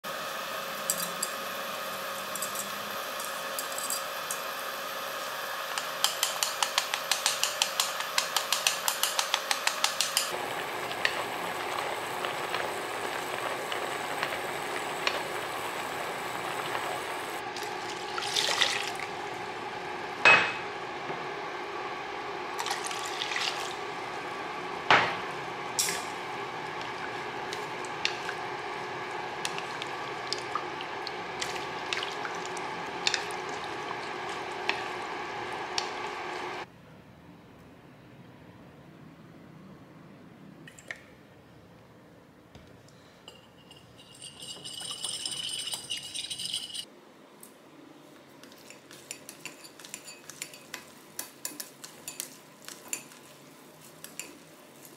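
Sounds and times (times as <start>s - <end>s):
water boiling in a pot: 0.0s - 36.7s.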